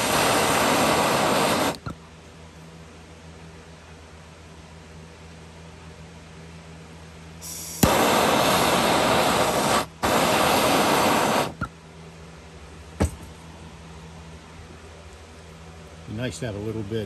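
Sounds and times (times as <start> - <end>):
gas torch clicking alight: 0.0 - 2.0, 7.4 - 11.7
gas torch hissing: 0.0 - 2.0, 7.4 - 11.7.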